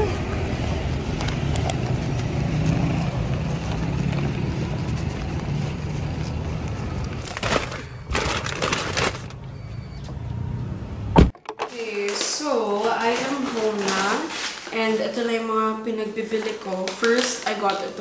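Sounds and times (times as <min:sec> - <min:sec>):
paper bag rustling and crinkling: 0:03.2 - 0:09.4, 0:11.7 - 0:18.0.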